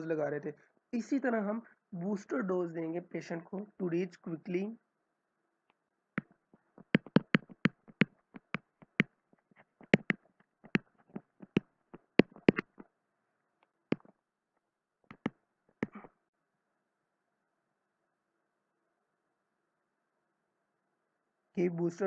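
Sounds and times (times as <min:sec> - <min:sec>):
pen tapping on whiteboard: 0:06.2 - 0:09.1, 0:09.8 - 0:12.8, 0:15.1 - 0:16.0.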